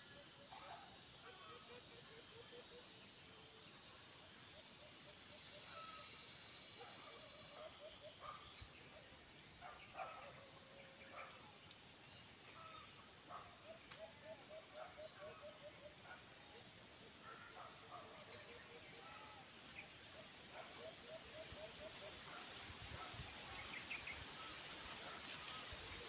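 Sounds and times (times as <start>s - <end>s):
wild birds calling: 6.8s - 11.5s, 17.1s - 26.0s.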